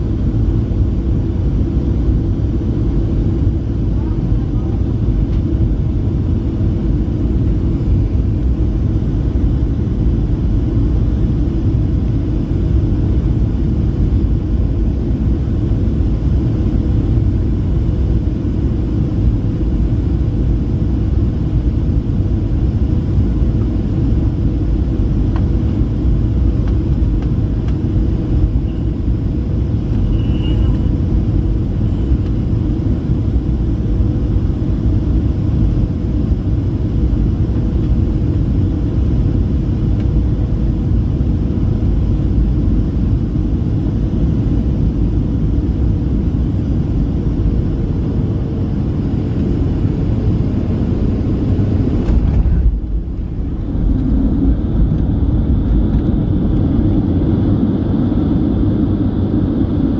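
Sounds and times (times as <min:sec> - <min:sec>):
airplane cabin engine rumble: 0:00.0 - 0:59.9
air rushing past fuselage: 0:49.8 - 0:57.7.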